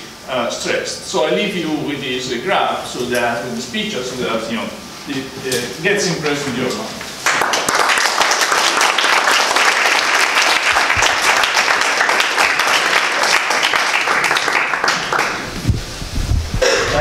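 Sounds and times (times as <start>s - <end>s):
audience applauding: 7.2s - 15.6s.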